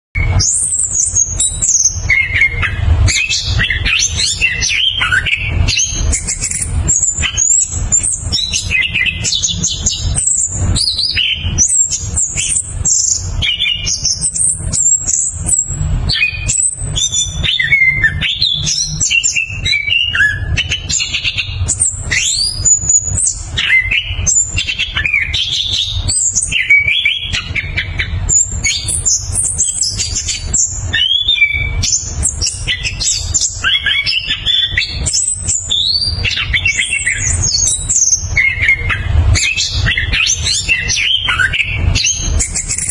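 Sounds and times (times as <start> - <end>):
steady low rumble: 0.3 - 19.7.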